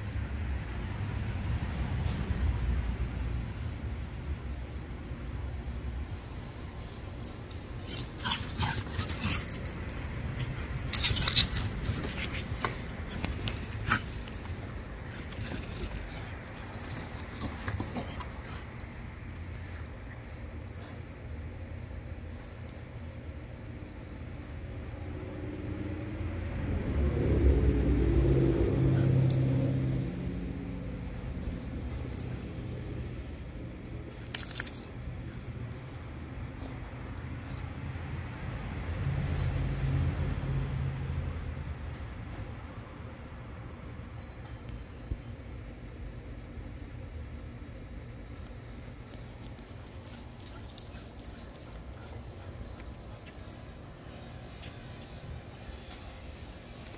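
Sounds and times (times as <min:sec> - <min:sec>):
vehicle engine passing: 0:05.4 - 0:19.8, 0:24.9 - 0:43.5
dog collar tags jingling: 0:06.6 - 0:20.1, 0:28.0 - 0:30.0, 0:31.3 - 0:32.8, 0:34.1 - 0:38.0, 0:39.3 - 0:40.8, 0:48.6 - 0:55.4.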